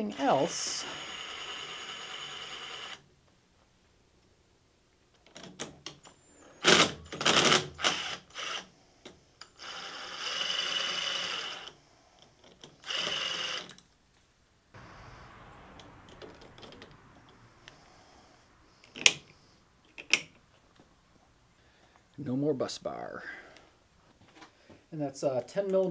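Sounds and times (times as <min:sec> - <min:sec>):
drill motor whirring: 0:00.8 - 0:03.0, 0:06.6 - 0:08.7, 0:09.4 - 0:11.8, 0:12.6 - 0:13.8.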